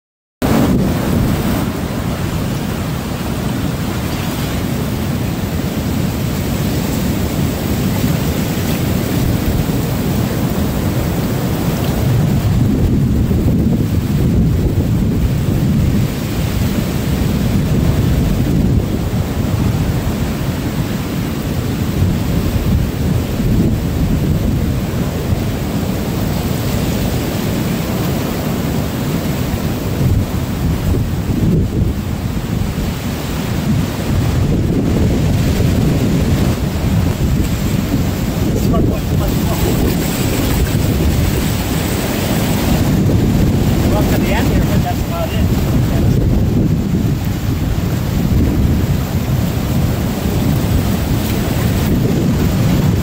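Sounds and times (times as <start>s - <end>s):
heavy surf breaking: 0.4s - 53.0s
water washing up beach: 0.4s - 53.0s
wind blowing on microphone: 0.4s - 53.0s.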